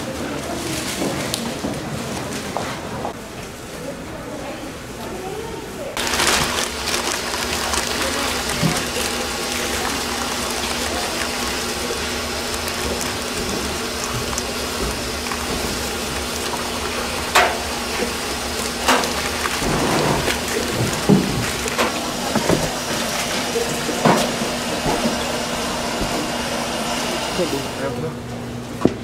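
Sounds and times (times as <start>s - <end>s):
steady hum: 5.8s - 29.0s
cling film crackling: 6.0s - 23.4s.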